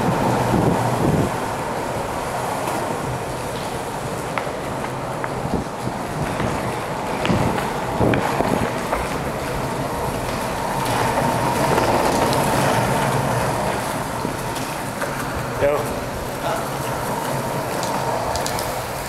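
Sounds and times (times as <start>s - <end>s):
skateboard wheels rolling on concrete: 0.0s - 19.0s.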